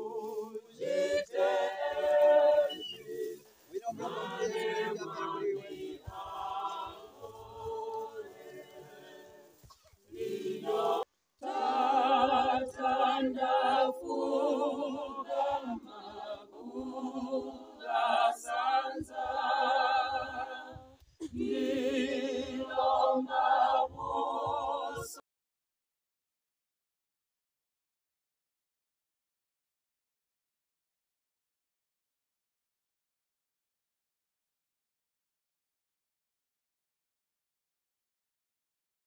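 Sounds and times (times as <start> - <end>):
group singing a hymn: 0.0 - 25.2.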